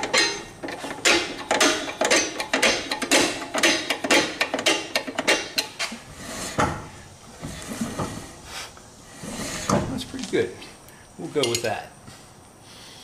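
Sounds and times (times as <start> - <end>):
wheel rubbing as turned by hand: 0.0 - 8.4, 9.0 - 10.2.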